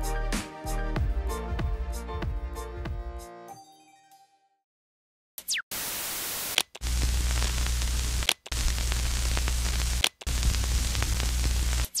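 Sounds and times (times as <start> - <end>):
television static hiss: 5.8 - 12.0.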